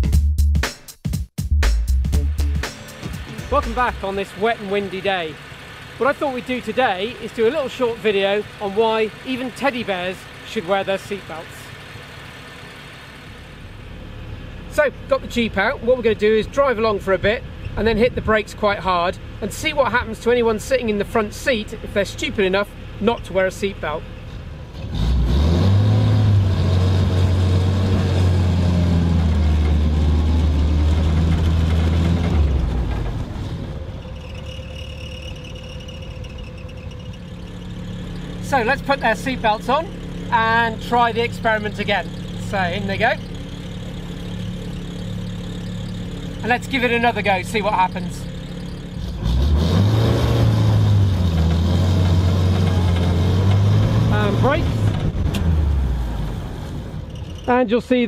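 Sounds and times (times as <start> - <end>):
jeep engine revving and idling: 2.2 - 58.0
jeep braking hard: 2.9 - 18.0, 18.9 - 57.8.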